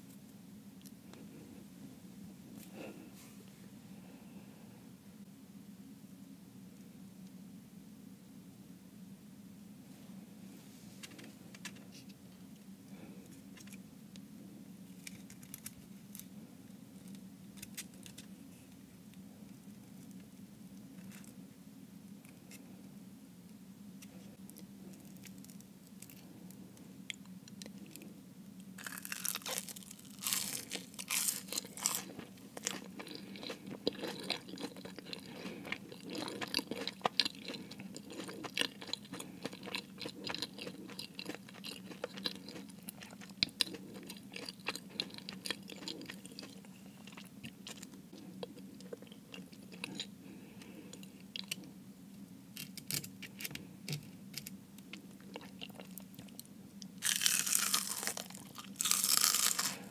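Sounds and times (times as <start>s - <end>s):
pastry crust crunching: 28.8s - 50.1s, 57.0s - 59.9s
chewing with crisp clicks: 30.2s - 51.7s, 54.4s - 59.8s.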